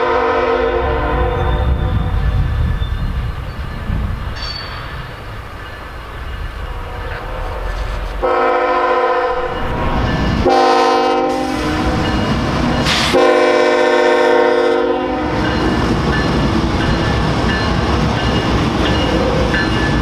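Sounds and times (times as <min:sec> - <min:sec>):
locomotive air horn: 0:00.0 - 0:01.8, 0:07.5 - 0:09.6, 0:10.4 - 0:12.1, 0:12.8 - 0:15.4.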